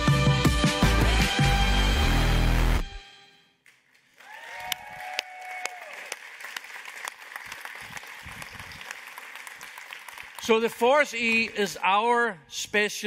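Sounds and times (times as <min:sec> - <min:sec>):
loud electronic music: 0:00.0 - 0:03.0
audience applauding and cheering: 0:03.6 - 0:11.7.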